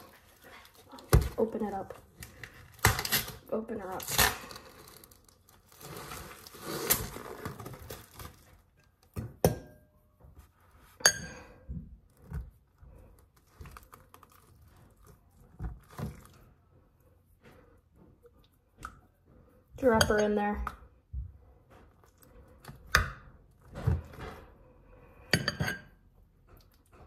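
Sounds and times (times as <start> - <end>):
plastic packaging crinkling: 0.0 - 9.1, 13.2 - 16.4.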